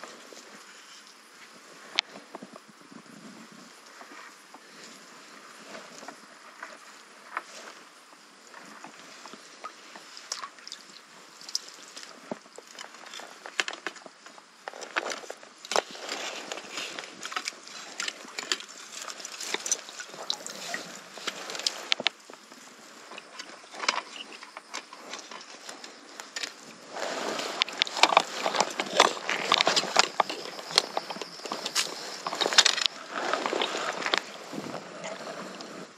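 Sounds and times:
fishing gear clicking and knocking: 0:12.4 - 0:22.5, 0:23.1 - 0:26.8, 0:27.5 - 0:35.2
water splashing and dripping: 0:17.3 - 0:21.9.

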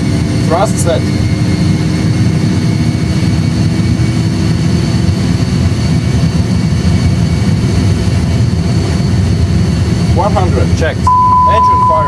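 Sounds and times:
jet engines rumbling: 0:00.0 - 0:12.0
faint high whine: 0:11.1 - 0:12.0.

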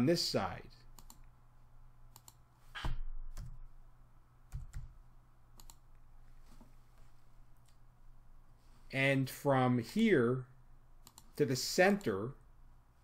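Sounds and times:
faint low hum: 0:00.0 - 0:13.0
computer mouse clicks: 0:00.9 - 0:01.3, 0:02.1 - 0:02.4, 0:05.6 - 0:05.9, 0:11.0 - 0:12.2.

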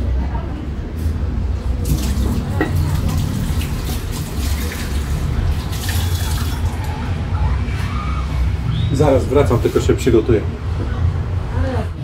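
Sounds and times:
running water: 0:01.8 - 0:07.1.

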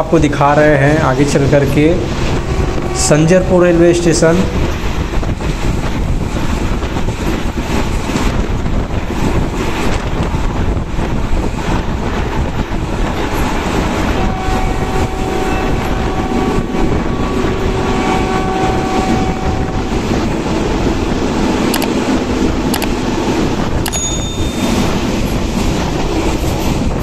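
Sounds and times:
train running at speed: 0:00.0 - 0:27.0
wind buffeting microphone: 0:00.0 - 0:27.0.

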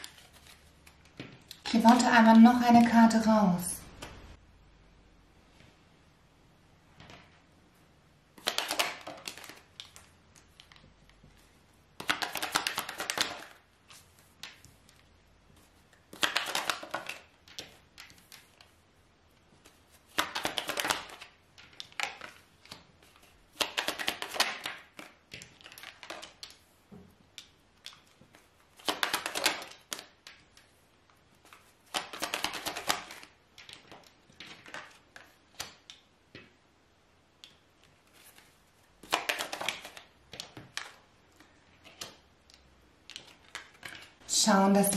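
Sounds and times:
cards being shuffled: 0:00.0 - 0:02.1, 0:08.4 - 0:18.8, 0:19.5 - 0:26.7, 0:27.4 - 0:36.5, 0:37.4 - 0:44.2.

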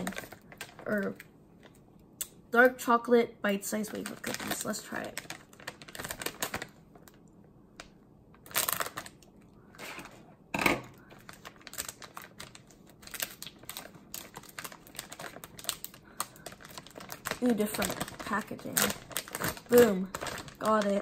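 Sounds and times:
plastic bag crinkling: 0:00.0 - 0:01.8, 0:03.7 - 0:07.2, 0:08.4 - 0:10.2, 0:10.8 - 0:21.0
scissors cutting plastic bag: 0:11.2 - 0:21.0.

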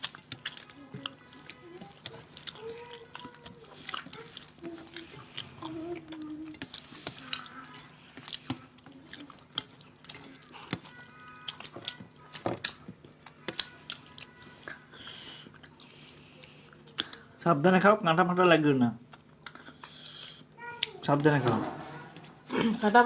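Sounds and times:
wet chewing and lip smacking: 0:00.0 - 0:17.4, 0:19.0 - 0:21.0.

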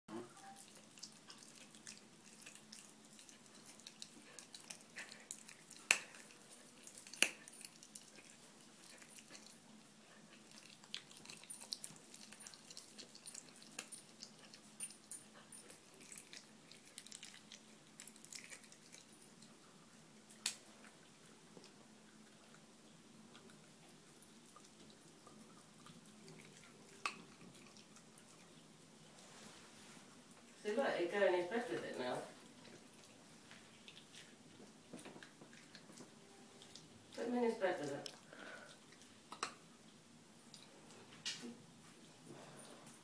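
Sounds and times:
faint steady hum: 0:00.1 - 0:43.0
puppy chewing bone: 0:00.4 - 0:29.2, 0:32.4 - 0:40.7.

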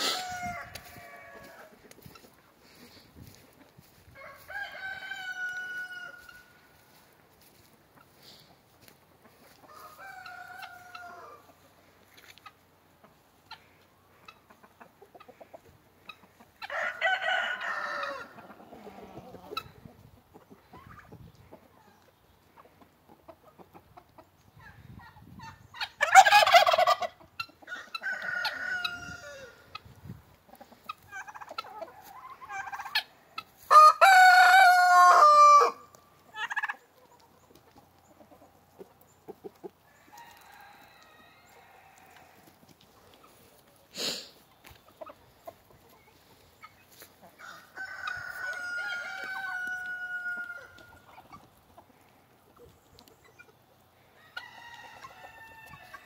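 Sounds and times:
roosters crowing: 0:00.0 - 0:02.2, 0:03.3 - 0:07.5, 0:09.5 - 0:11.6, 0:16.6 - 0:19.5, 0:26.0 - 0:29.8, 0:31.8 - 0:36.0, 0:39.9 - 0:42.6, 0:46.9 - 0:51.2, 0:54.0 - 0:56.0.

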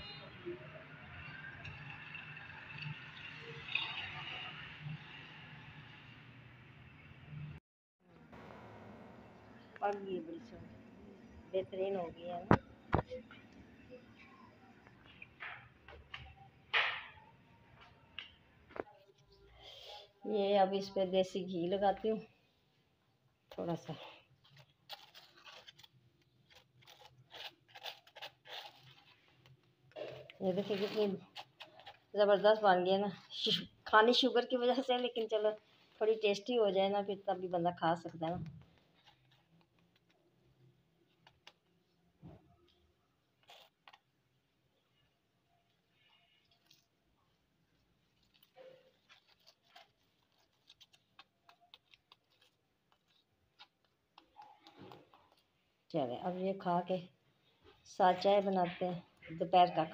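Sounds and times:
spoon scraping bread: 0:24.4 - 0:33.8, 0:47.8 - 0:55.8.

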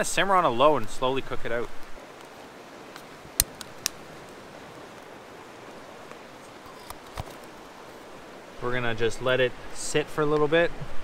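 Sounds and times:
flowing river water: 0:00.0 - 0:11.0
stove igniter clicks: 0:03.4 - 0:04.0.

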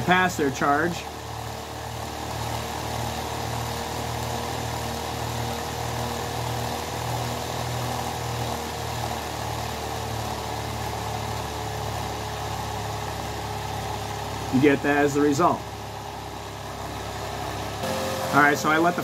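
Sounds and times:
slow regular throb: 0:00.0 - 0:19.0
small motor whirring: 0:01.1 - 0:14.6.

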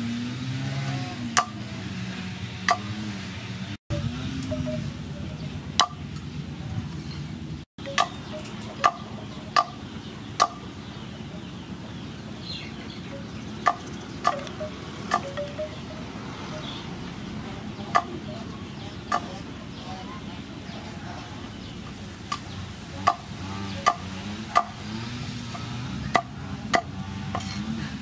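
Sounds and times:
cleaver chopping on wooden board: 0:01.4 - 0:01.6, 0:02.7 - 0:03.0, 0:09.6 - 0:09.8, 0:10.4 - 0:10.6, 0:13.6 - 0:14.4, 0:23.8 - 0:24.9, 0:25.5 - 0:27.7.

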